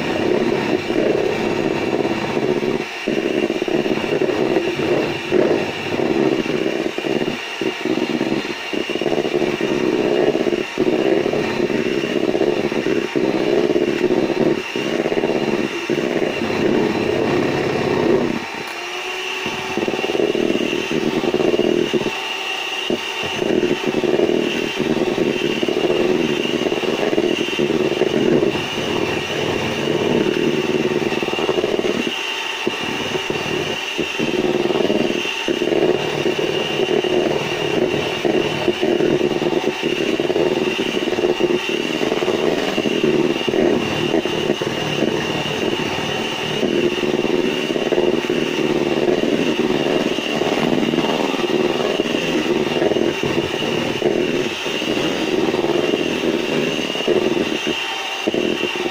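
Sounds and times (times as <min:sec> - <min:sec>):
electric hand mixer whining: 0:00.0 - 0:58.9.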